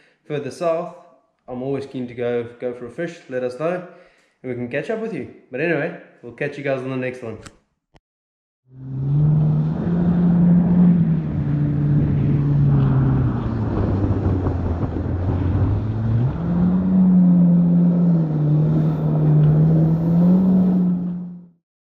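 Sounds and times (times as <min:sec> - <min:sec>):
jet ski engine running: 0:08.8 - 0:16.0.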